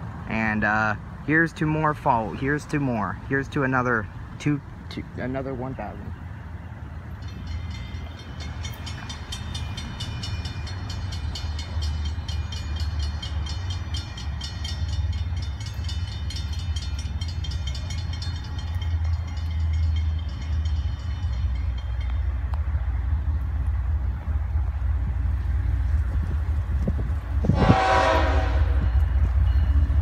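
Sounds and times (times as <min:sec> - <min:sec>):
freight train rumbling: 0:00.0 - 0:30.0
rapid high-pitched ringing: 0:07.2 - 0:22.3.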